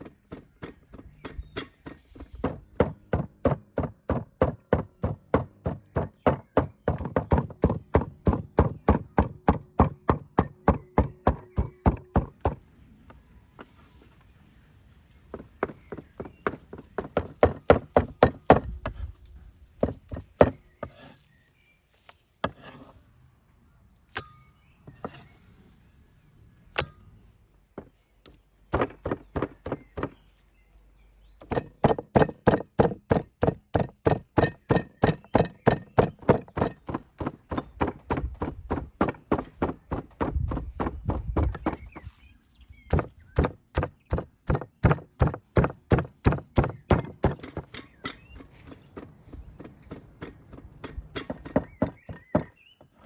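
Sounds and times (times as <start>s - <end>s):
cleaver chopping on wooden board: 31.4s - 42.2s, 42.9s - 47.7s.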